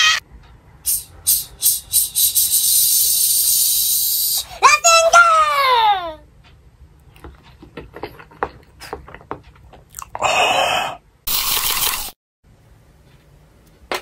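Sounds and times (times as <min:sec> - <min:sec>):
loud hissing bursts: 0:00.9 - 0:04.6.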